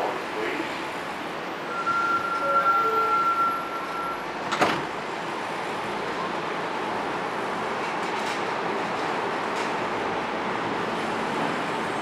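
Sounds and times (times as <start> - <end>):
subway train squeal: 1.5 - 4.6.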